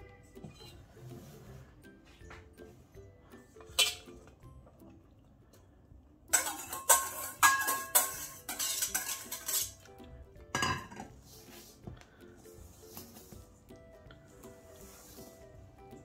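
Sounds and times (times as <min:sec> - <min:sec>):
whisk scraping metal bowl: 0:06.4 - 0:09.8
metal bowl set down on counter: 0:10.5 - 0:11.1.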